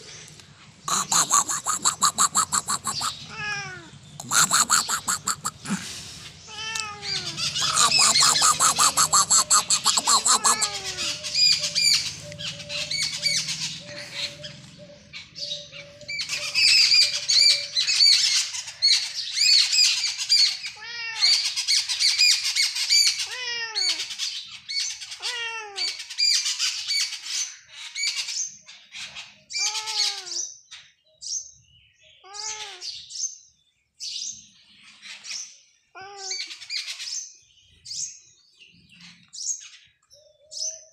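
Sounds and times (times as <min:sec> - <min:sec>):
small birds chirping: 0:00.0 - 0:40.9
cat meowing: 0:01.0 - 0:05.8, 0:06.5 - 0:11.3, 0:25.2 - 0:26.0.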